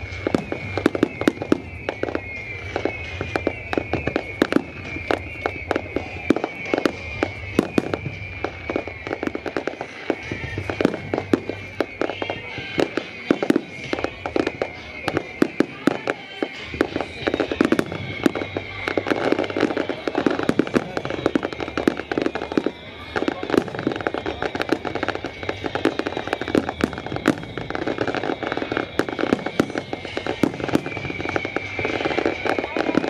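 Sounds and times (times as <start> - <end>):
fireworks bursting and crackling: 0.0 - 33.0.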